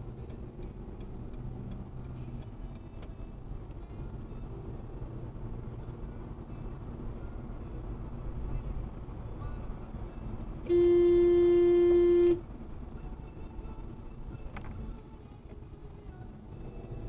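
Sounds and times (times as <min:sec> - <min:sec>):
road noise hum: 0:00.0 - 0:17.0
car horn honk: 0:10.6 - 0:12.5.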